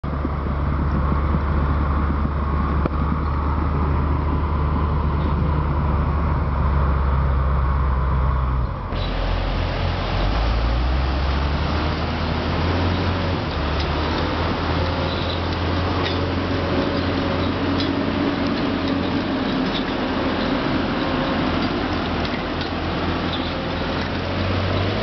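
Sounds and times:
diesel engine droning: 0.0s - 25.0s
tracked machine engine with hiss: 8.9s - 25.0s.

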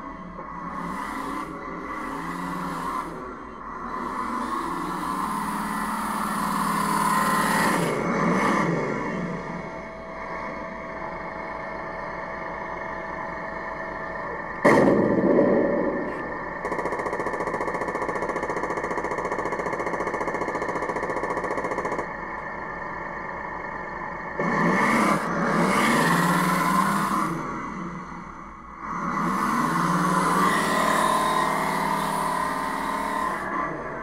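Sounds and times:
toy tank engine idle sound: 0.0s - 14.6s, 15.7s - 34.0s
cannon shot effect: 14.6s - 22.1s
machine-gun rattle effect: 14.6s - 22.2s.

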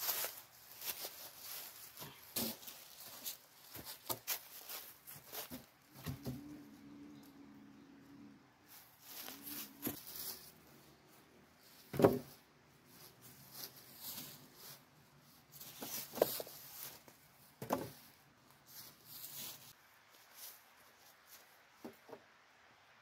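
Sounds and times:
footsteps crunching dry leaves: 0.0s - 5.7s, 8.7s - 10.8s, 12.9s - 14.9s
wooden poles knocking on logs: 11.9s - 12.3s.

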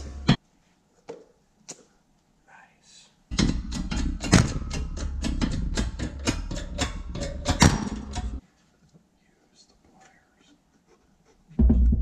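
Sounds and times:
rapid sharp metal knocks: 3.3s - 8.4s.

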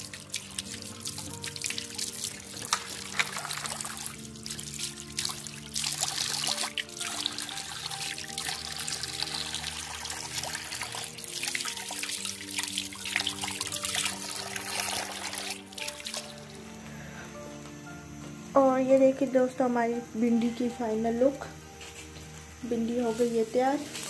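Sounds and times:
tap water running into basin: 0.0s - 16.6s
background music with held notes: 0.0s - 24.0s.

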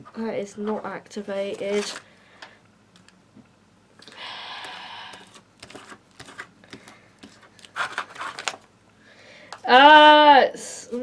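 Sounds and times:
paper leaflet rustling: 5.1s - 8.7s.

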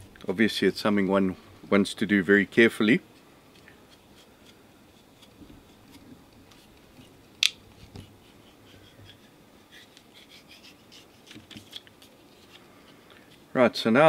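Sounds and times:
knife scraping plastic tubing: 3.5s - 13.4s.

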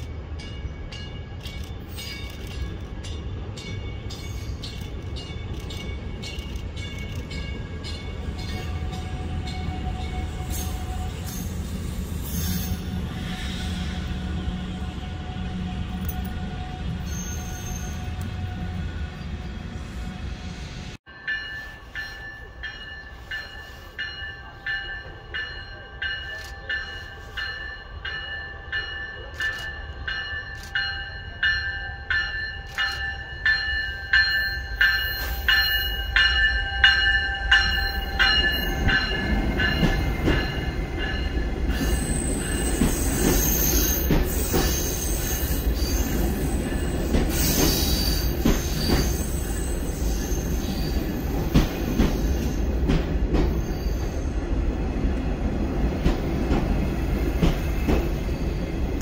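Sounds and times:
train wheels rumbling and knocking: 0.0s - 20.5s, 22.2s - 59.0s
high wheel squeals: 10.0s - 14.2s, 17.0s - 18.2s, 41.7s - 51.4s, 53.5s - 54.4s
high pulsing ringing: 21.1s - 47.0s.

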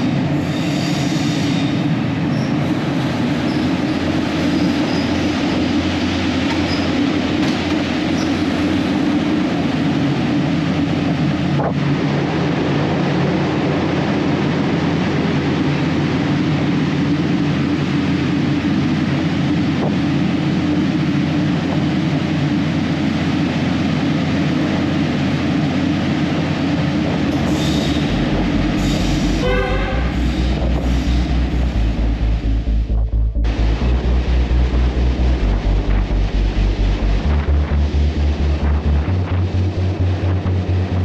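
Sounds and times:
locomotive engine and wheels on rail: 0.0s - 41.0s
music with pulsing low beat: 27.9s - 41.0s.

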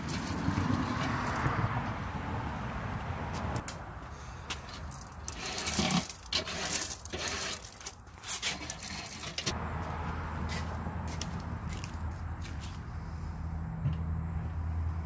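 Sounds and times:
grill brush scraping metal grate: 4.5s - 9.6s.

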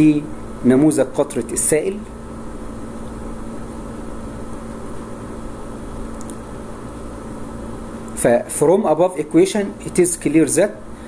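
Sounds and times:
machine-like hum and hiss: 0.0s - 11.0s.

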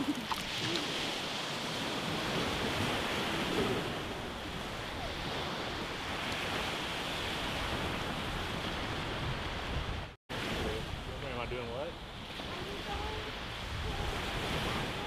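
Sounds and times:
small waves breaking on beach: 0.0s - 15.0s.

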